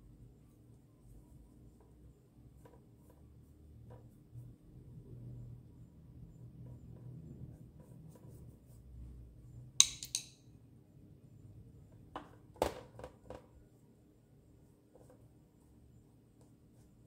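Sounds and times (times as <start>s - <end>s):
brush on paper: 0.0s - 9.4s, 13.7s - 17.0s
paintbrush clinking on dish: 9.8s - 10.4s.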